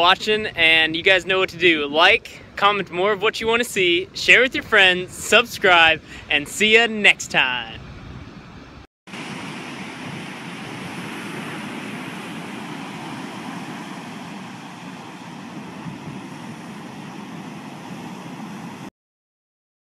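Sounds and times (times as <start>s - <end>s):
ocean surf breaking on beach: 9.1s - 18.9s.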